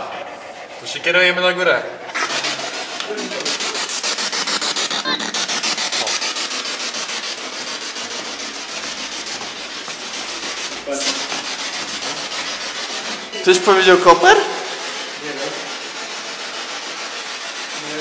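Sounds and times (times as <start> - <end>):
pulsing radio static: 4.4 - 6.3.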